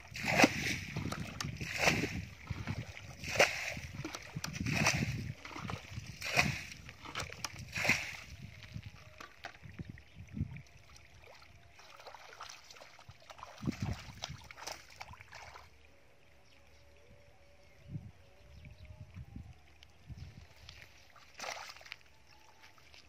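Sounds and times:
muddy water splashing: 0:00.0 - 0:15.8, 0:20.6 - 0:23.0
feet thudding in mud: 0:00.2 - 0:05.2, 0:21.4 - 0:21.9.

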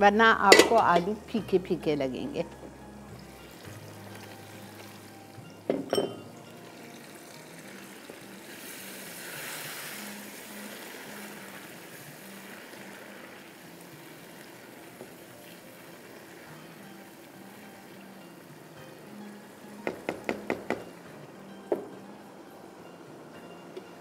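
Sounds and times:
utensil clinking against pan: 0:05.7 - 0:06.3.

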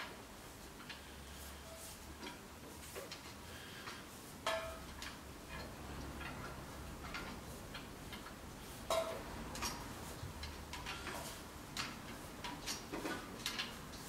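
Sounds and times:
metal pipes clicking together: 0:03.9 - 0:14.0.

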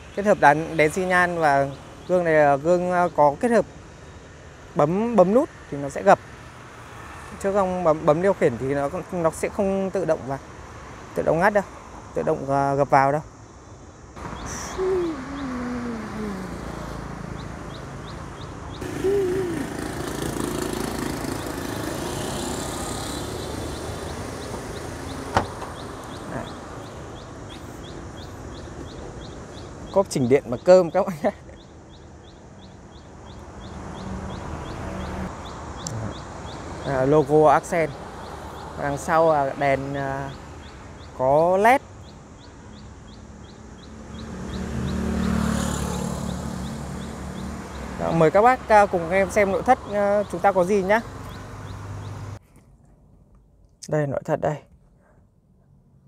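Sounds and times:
street traffic: 0:00.0 - 0:56.0
passing vehicle engine: 0:14.2 - 0:29.7, 0:31.9 - 0:41.0, 0:42.7 - 0:52.4.

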